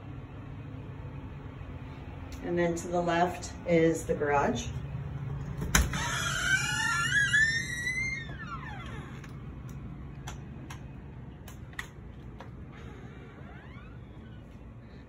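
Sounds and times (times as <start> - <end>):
steady low hum: 0.0 - 15.0
door hinge squeaking: 5.7 - 9.4, 12.8 - 14.5.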